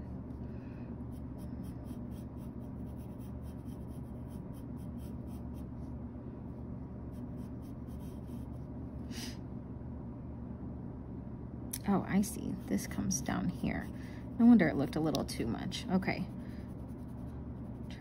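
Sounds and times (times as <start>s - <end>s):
pencil scratching on paper: 1.1s - 5.7s, 7.1s - 8.6s, 16.7s - 18.0s.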